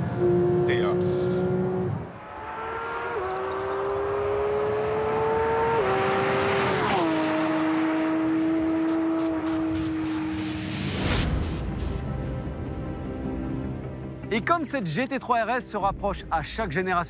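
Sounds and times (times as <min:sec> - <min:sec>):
car engine accelerating hard: 0:00.0 - 0:10.9.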